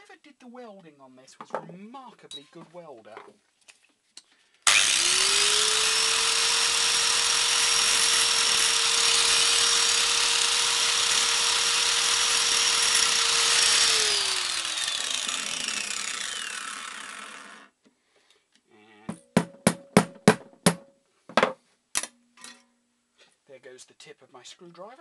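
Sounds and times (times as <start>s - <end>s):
disc grinding steel: 4.7s - 17.6s
angle grinder motor whine: 4.7s - 17.7s.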